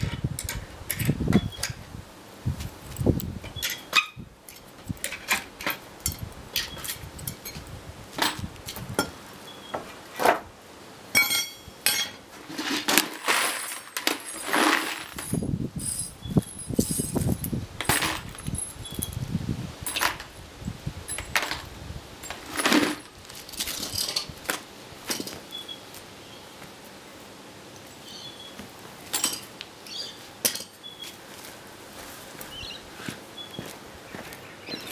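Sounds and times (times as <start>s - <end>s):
metal nails clinking on concrete: 0.0s - 1.8s, 2.9s - 9.1s, 11.2s - 20.4s, 21.1s - 24.3s, 29.1s - 30.8s.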